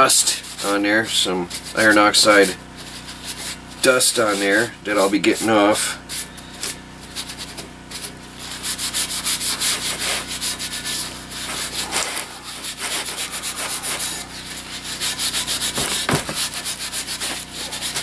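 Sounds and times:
paper towel rubbing iron handle: 7.3s - 18.0s.

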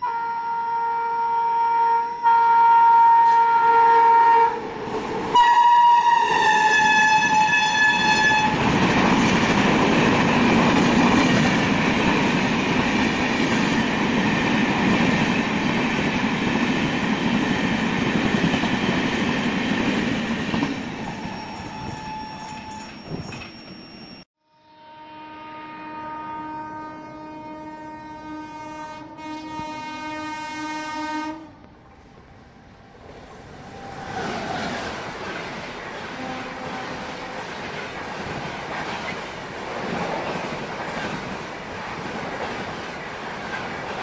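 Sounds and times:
train horn blasts: 0.0s - 4.6s, 5.4s - 8.6s, 24.4s - 31.7s, 36.1s - 37.6s
train wheels roaring on rails: 3.2s - 24.3s, 31.7s - 44.0s.

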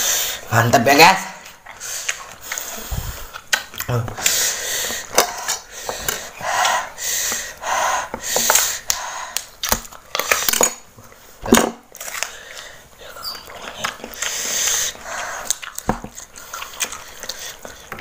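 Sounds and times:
crunchy biting and chewing: 11.9s - 18.0s.

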